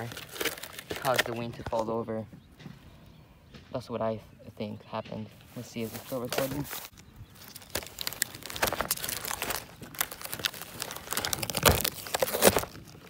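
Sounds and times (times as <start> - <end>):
tape crinkling and tearing: 0.0 - 1.9, 5.8 - 13.0.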